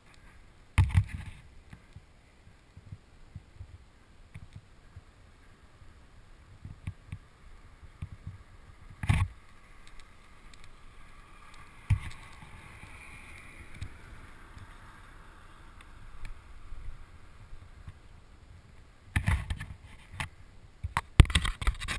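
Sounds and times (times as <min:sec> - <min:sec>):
wind rushing over microphone: 0:05.8 - 0:19.9.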